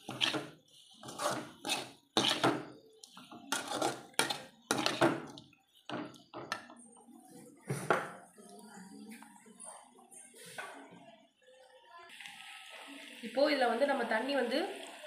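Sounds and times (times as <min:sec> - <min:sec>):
ladle scraping metal pan: 0:00.0 - 0:05.3.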